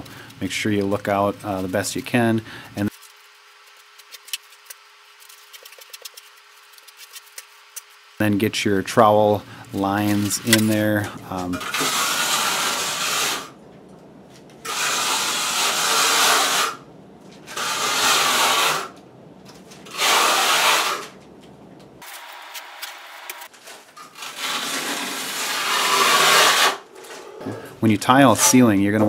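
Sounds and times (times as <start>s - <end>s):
trowel rasping on wet mortar: 24.2s - 26.8s.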